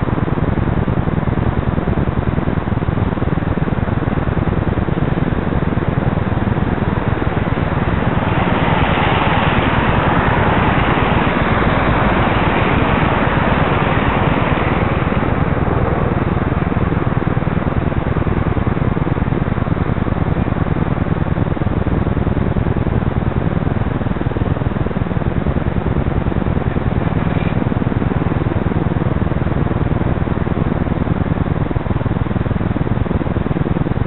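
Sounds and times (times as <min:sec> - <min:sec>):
road traffic rumble: 0:06.2 - 0:20.5, 0:26.1 - 0:28.2.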